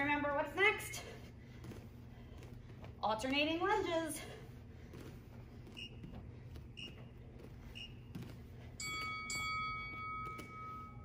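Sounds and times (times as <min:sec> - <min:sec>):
timer short beeps: 0:07.7 - 0:08.1.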